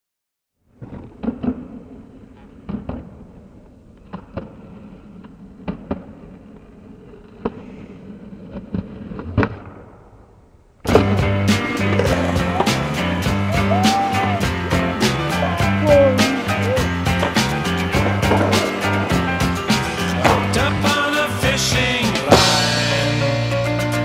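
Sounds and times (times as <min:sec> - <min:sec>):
skateboard wheels rolling on pavement: 0:00.7 - 0:09.6, 0:10.4 - 0:22.7
skateboard wheels clacking on seams: 0:10.9 - 0:14.3, 0:17.1 - 0:21.2
loud music: 0:10.9 - 0:24.0.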